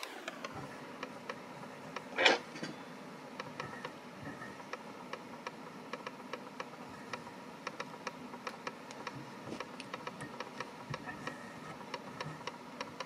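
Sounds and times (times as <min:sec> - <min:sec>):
faint steady hum: 0:00.0 - 0:13.0
light clicks and ticks: 0:03.3 - 0:13.0.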